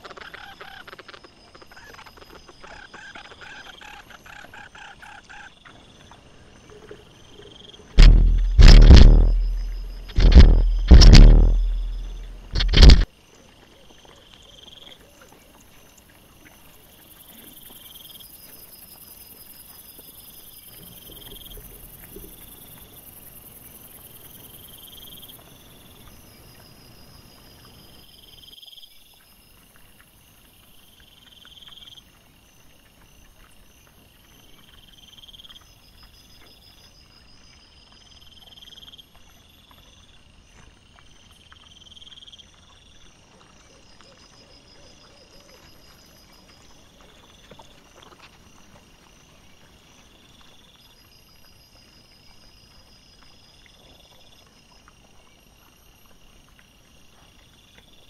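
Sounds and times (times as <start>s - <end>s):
low rustling: 8.0s - 13.1s.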